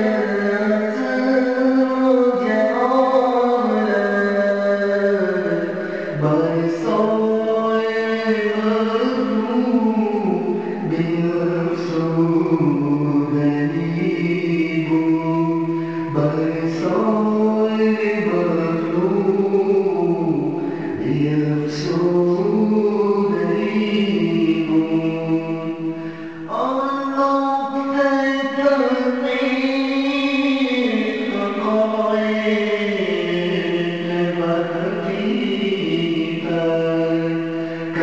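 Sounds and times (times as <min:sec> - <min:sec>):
devotional vocal chant: 0:00.0 - 0:38.0.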